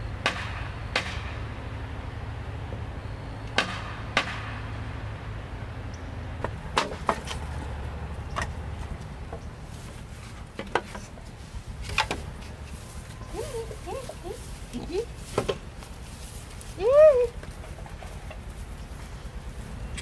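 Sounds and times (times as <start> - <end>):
steady low hum: 0.0 - 20.0
tool striking bamboo: 0.2 - 1.5, 3.5 - 4.8, 6.4 - 7.7, 10.4 - 11.2, 11.8 - 12.6, 15.3 - 15.6.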